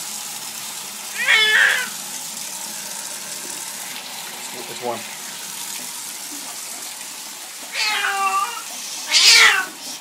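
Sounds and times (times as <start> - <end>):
running bath water hiss: 0.0 - 10.0
cat yowling: 1.1 - 2.0, 7.7 - 9.8.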